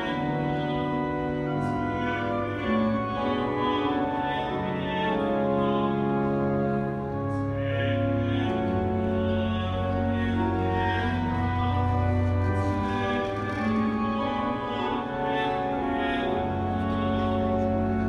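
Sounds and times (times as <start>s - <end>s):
pipe organ playing chords: 0.0s - 18.0s.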